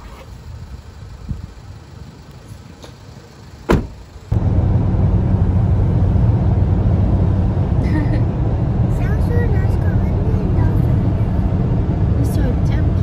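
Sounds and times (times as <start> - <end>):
car road and engine noise: 0.0 - 13.0
car door slamming: 3.6 - 4.0.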